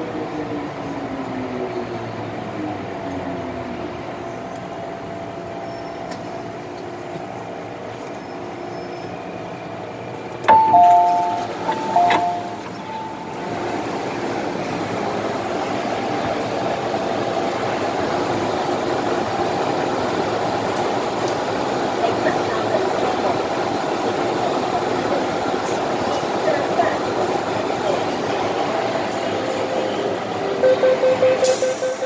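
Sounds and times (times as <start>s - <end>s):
train car humming: 0.0s - 32.0s
two-tone door chime beeps: 10.5s - 13.4s, 30.6s - 32.0s.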